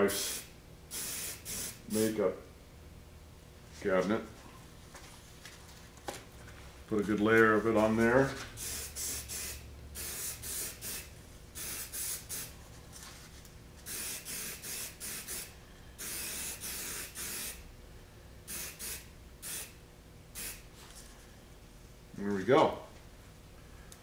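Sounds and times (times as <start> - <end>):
aerosol spray hissing: 0.1 - 1.8, 8.6 - 12.6, 13.9 - 17.6, 18.5 - 19.8, 20.4 - 20.6.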